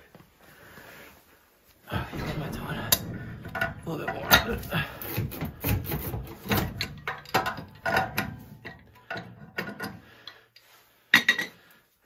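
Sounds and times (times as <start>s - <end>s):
metal clicks and clanks: 2.0s - 10.4s.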